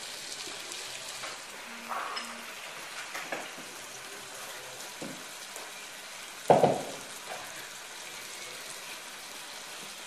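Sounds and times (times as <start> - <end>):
meat and onions sizzling: 0.0 - 10.0
loud knock: 6.5 - 7.0.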